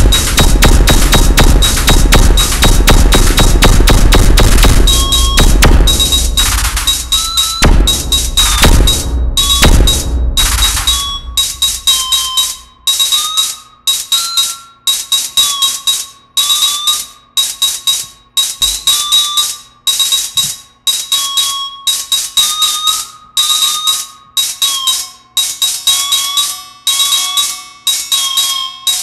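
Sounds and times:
metallic electronic percussion pattern: 0.0 - 29.0.

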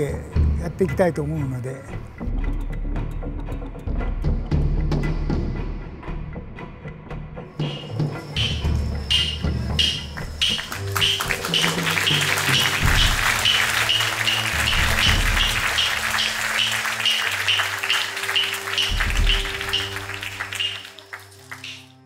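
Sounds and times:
music with pulsing high notes: 7.4 - 22.0
audience applauding: 8.4 - 22.0.

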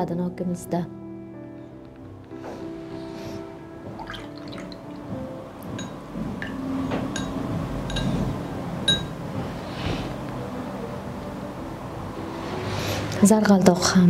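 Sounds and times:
water swishing in a jar: 4.0 - 5.0
brush clinking on jar rim: 8.9 - 9.1.

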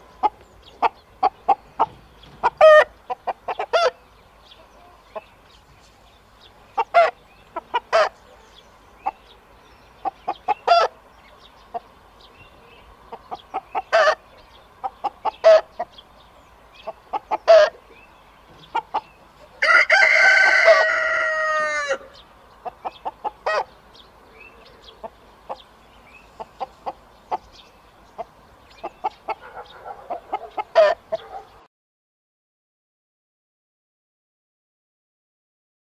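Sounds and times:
chickens clucking: 0.0 - 31.7
rooster crowing: 19.6 - 22.2.

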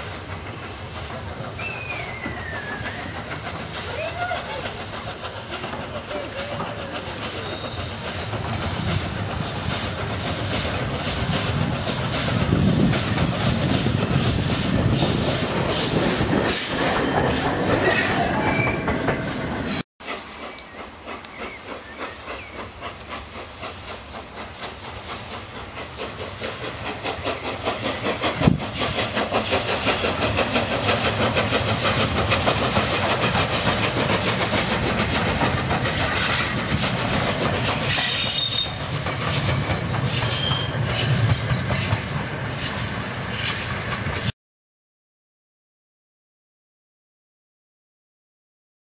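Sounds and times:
steam locomotive exhaust beats: 0.0 - 44.3
wheels on rails: 0.1 - 44.3.

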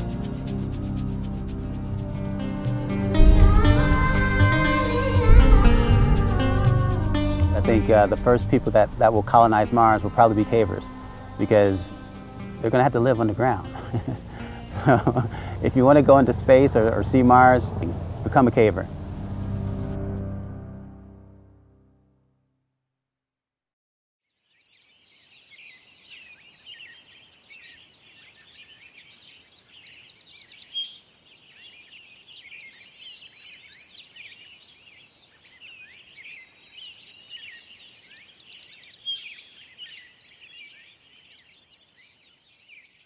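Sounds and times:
chorus of birds chirping: 3.1 - 18.2, 24.4 - 43.0.

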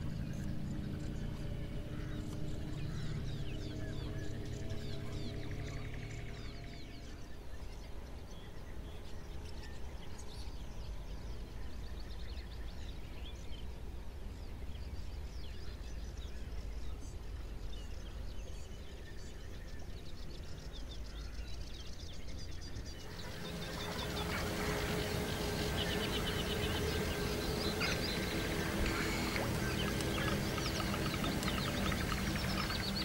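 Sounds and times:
songbirds chirping and whistling: 0.0 - 13.8, 14.4 - 33.0
steady low rumble: 23.0 - 33.0.

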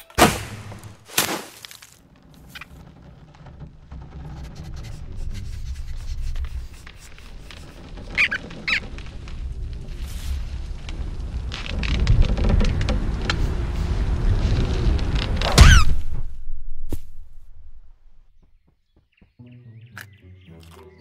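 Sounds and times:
cartoon squirrel squeaks: 8.2 - 8.8.

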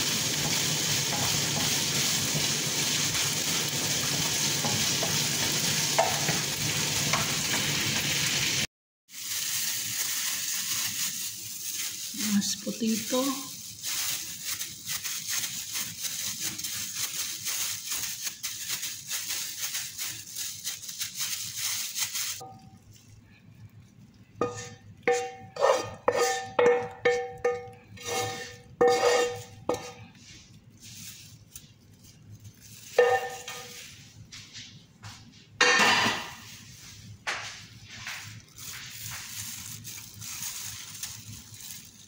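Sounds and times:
plastic gloves crinkling: 9.1 - 25.1, 28.1 - 35.2, 36.4 - 42.0
utensil clinking on frying pan: 24.4 - 30.0, 32.9 - 33.8.

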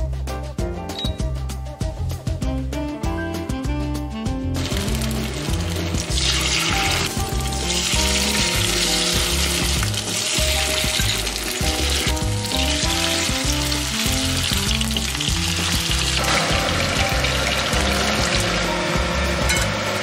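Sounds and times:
background music with bass line: 0.0 - 20.0
fish sizzling in hot oil: 4.6 - 20.0.

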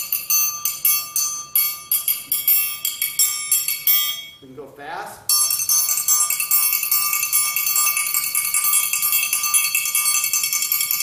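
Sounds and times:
triangle roll: 0.0 - 4.4.

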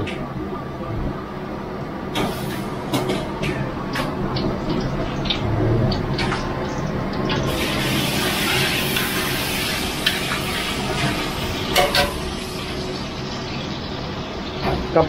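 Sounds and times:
aromatics sizzling in oil: 2.2 - 15.0.

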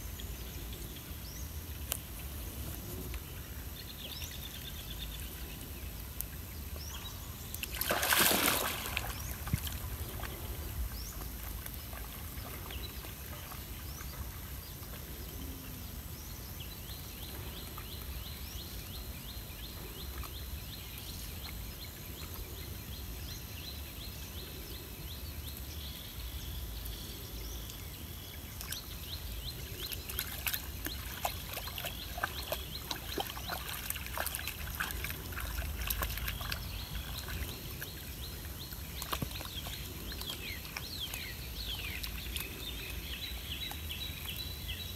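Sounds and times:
small quick paddling splashes: 7.6 - 10.6, 30.0 - 38.1
monkey splashing into water: 7.7 - 9.9
water sloshing: 7.7 - 14.5, 30.1 - 42.6.

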